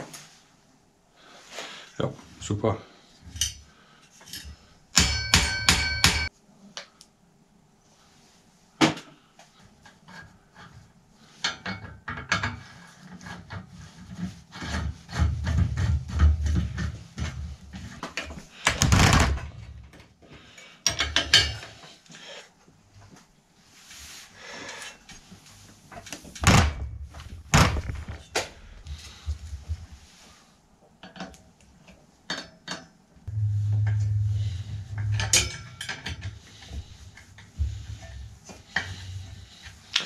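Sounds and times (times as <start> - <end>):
loud scraping noise: 33.3 - 39.6.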